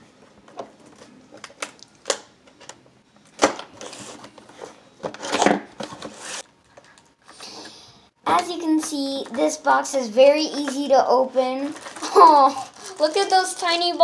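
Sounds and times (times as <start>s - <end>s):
cardboard scraping rustles: 3.8s - 6.5s.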